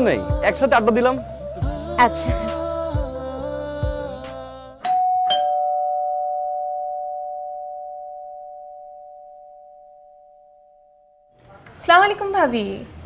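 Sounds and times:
doorbell ding-dong chime: 0:04.8 - 0:11.2.

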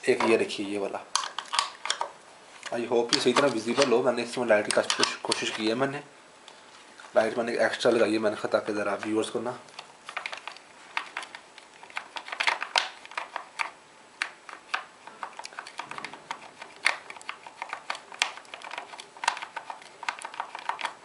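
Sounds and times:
wires and plastic connectors clicking: 0:01.1 - 0:05.7, 0:08.9 - 0:21.0.

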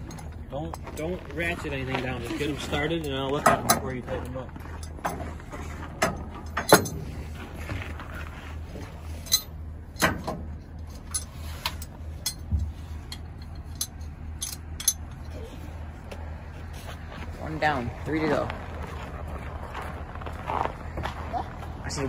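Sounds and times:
steady low hum: 0:00.0 - 0:22.0
metal hooks clinking: 0:09.2 - 0:15.4.

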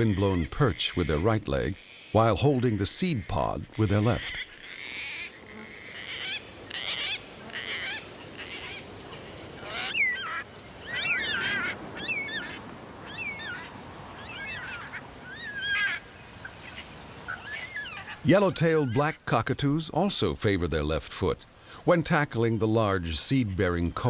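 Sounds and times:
cockatoos rasping calls: 0:03.9 - 0:18.3.

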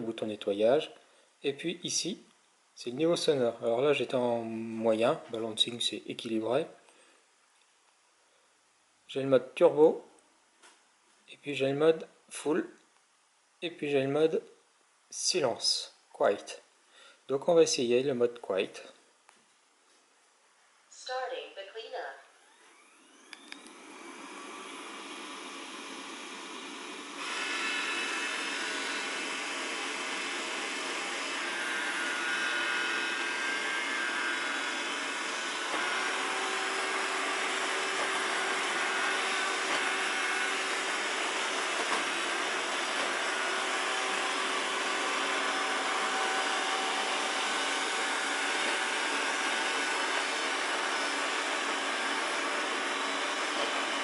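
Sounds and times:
robot vacuum whirring: 0:22.4 - 0:54.0.

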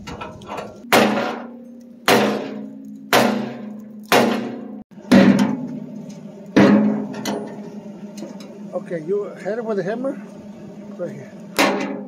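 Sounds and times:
hammer striking steel bucket: 0:00.8 - 0:06.0, 0:06.6 - 0:07.7, 0:11.6 - 0:12.0.

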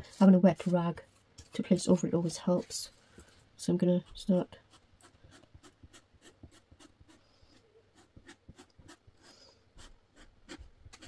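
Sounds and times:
palette knife scraping paste: 0:03.8 - 0:11.0.

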